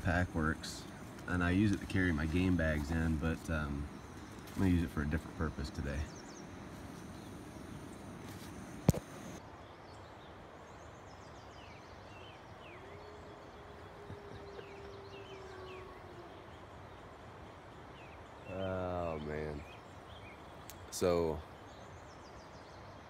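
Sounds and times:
distant wolf howling: 0:12.3 - 0:19.7.

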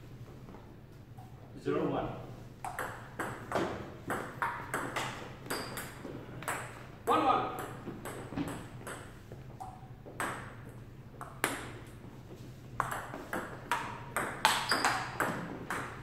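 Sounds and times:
table tennis ball knocks: 0:02.6 - 0:06.8, 0:12.8 - 0:16.0.

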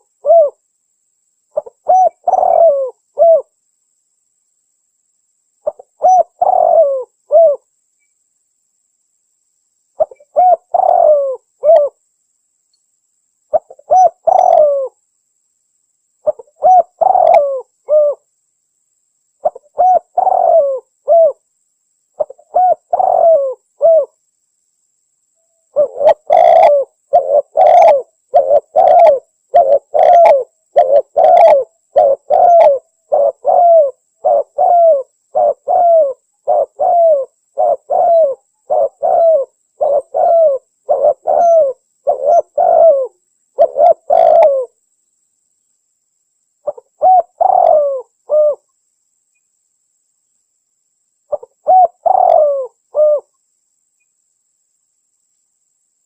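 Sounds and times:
dove cooing: 0:00.0 - 0:00.6, 0:01.5 - 0:03.5, 0:05.6 - 0:07.7, 0:10.0 - 0:12.0, 0:13.5 - 0:15.0, 0:16.2 - 0:18.2, 0:19.4 - 0:21.4, 0:22.2 - 0:24.2, 0:25.7 - 0:44.8, 0:46.6 - 0:48.7, 0:51.3 - 0:53.3.

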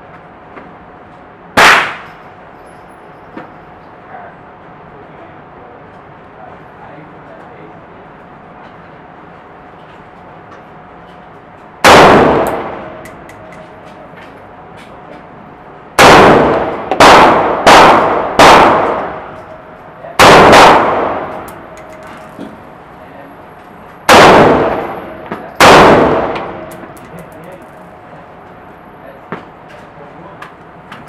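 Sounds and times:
rifle shots with echo: 0:01.6 - 0:02.1, 0:11.8 - 0:13.0, 0:16.0 - 0:19.4, 0:20.2 - 0:21.7, 0:24.1 - 0:27.0.

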